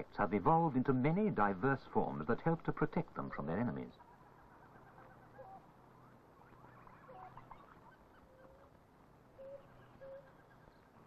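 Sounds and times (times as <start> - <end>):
film soundtrack hiss: 0.0 - 11.0
faint bird-like calls: 3.2 - 11.0.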